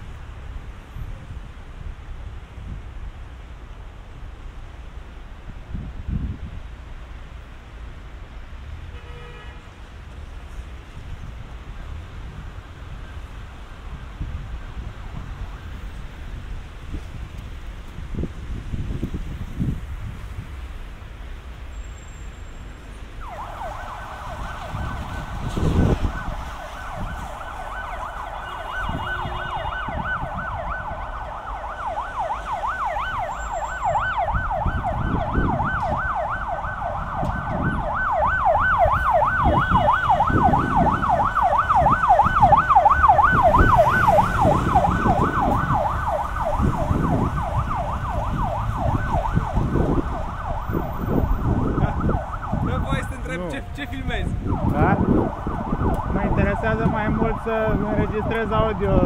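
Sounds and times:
low rumbling street noise: 0:00.0 - 0:59.0
emergency siren yelping: 0:23.2 - 0:59.0.

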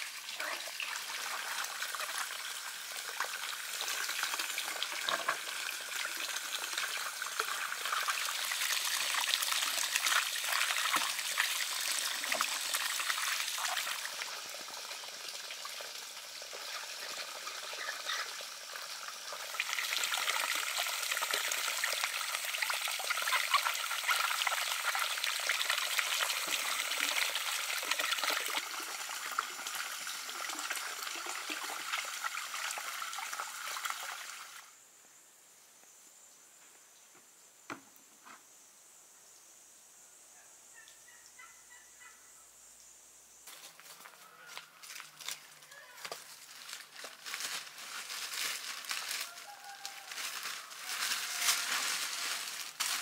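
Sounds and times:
water splashing in a basin: 0:00.0 - 0:34.6.

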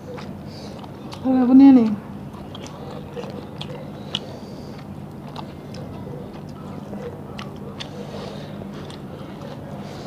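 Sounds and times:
people chewing food: 0:00.0 - 0:10.0
steady low hum: 0:00.0 - 0:10.0.

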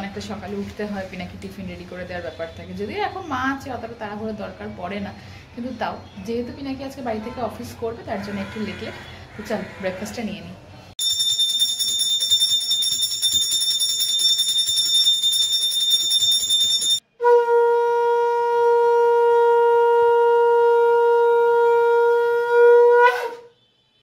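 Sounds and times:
conch shell blown: 0:17.0 - 0:23.8.

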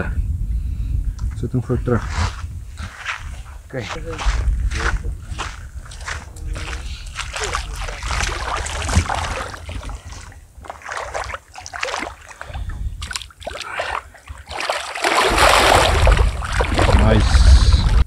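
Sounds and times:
water splashing and sloshing: 0:02.8 - 0:18.0.

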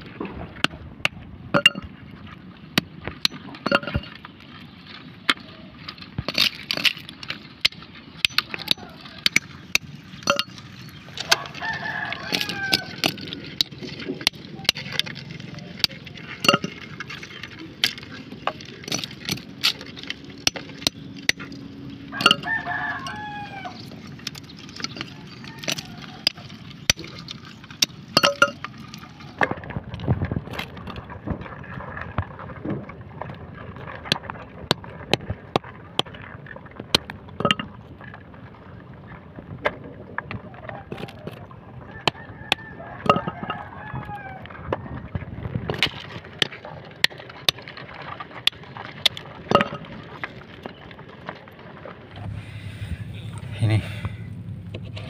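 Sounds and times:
rooster crowing: 0:08.5 - 0:09.2, 0:11.2 - 0:13.0, 0:22.1 - 0:23.9, 0:25.1 - 0:26.5, 0:41.9 - 0:44.5.

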